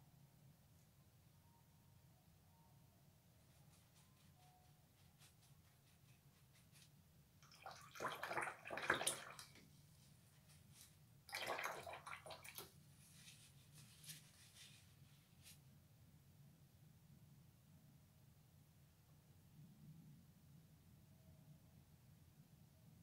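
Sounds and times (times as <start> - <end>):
paintbrush sloshing in water jar: 6.0 - 9.6, 10.7 - 14.8.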